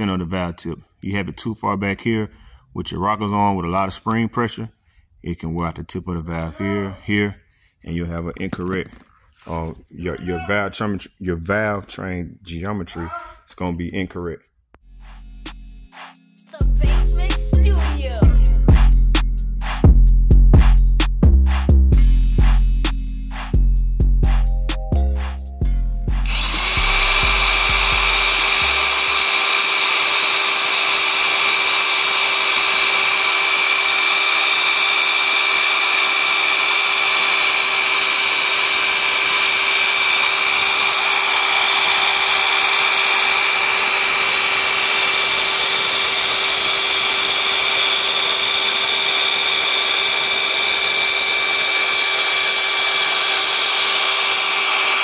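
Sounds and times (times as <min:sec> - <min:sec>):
electric motor whine: 0:26.1 - 0:55.0.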